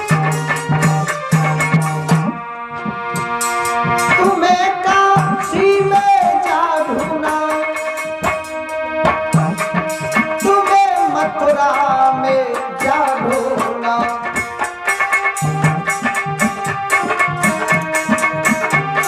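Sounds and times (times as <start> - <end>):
hand drum beat: 0.0 - 19.0
steady held notes: 0.0 - 19.0
person singing: 4.0 - 8.5, 9.8 - 15.1.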